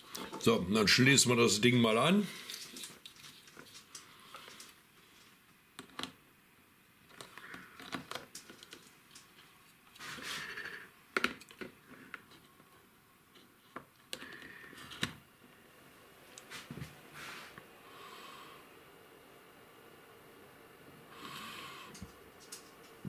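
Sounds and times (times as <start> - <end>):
cables rustling: 2.3 - 6.1.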